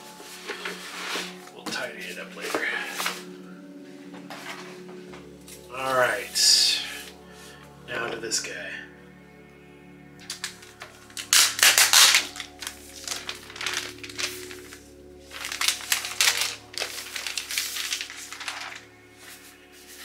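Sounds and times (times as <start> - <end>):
soft background music: 0.0 - 20.0
plastic sleeve crinkling: 0.2 - 3.3, 10.2 - 20.0.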